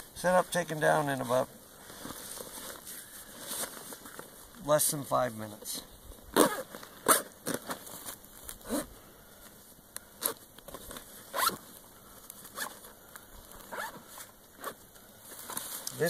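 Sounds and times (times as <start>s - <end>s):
backpack zippers rasping: 6.3s - 7.9s, 8.6s - 8.9s, 10.2s - 11.6s, 12.5s - 12.8s, 13.6s - 14.8s.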